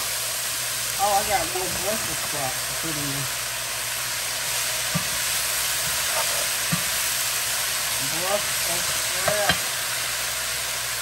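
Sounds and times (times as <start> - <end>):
vegetables sizzling in a skillet: 0.0 - 11.0.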